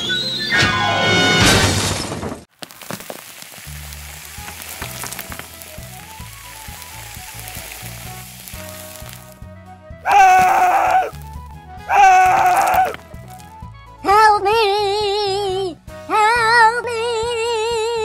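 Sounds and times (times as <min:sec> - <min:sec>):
sizzling crackling hiss: 0:02.5 - 0:09.5, 0:10.1 - 0:13.6.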